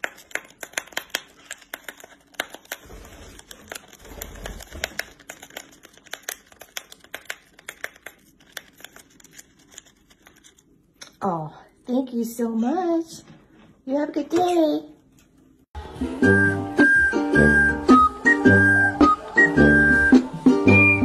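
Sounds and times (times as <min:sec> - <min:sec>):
bird tearing paper packet: 0:00.0 - 0:10.7.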